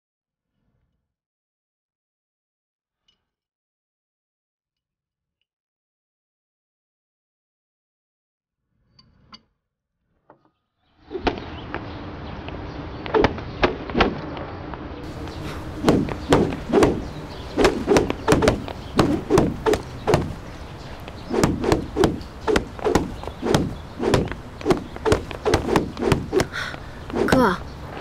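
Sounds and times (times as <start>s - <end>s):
stick whacking: 13.1s - 14.2s, 15.2s - 20.5s, 21.3s - 27.6s.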